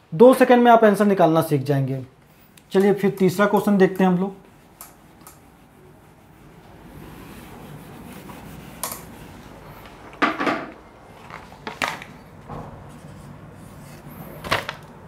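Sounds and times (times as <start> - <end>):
rubbing on whiteboard: 3.7 - 9.8
knocks and clatters: 10.2 - 10.8.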